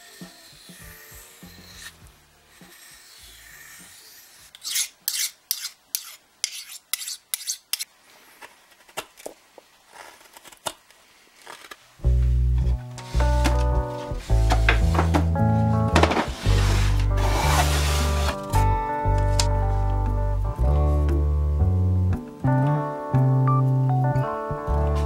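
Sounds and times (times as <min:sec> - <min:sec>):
blade scraping on sharpening rod: 0:00.0 - 0:02.0, 0:02.6 - 0:07.9
music: 0:00.0 - 0:03.4, 0:12.0 - 0:25.0
knife rubbing on whetstone: 0:00.0 - 0:07.9, 0:16.2 - 0:18.4.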